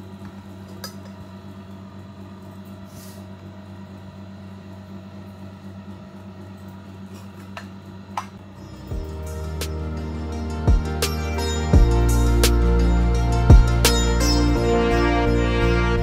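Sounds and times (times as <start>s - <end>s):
low hum: 8.3s - 16.0s.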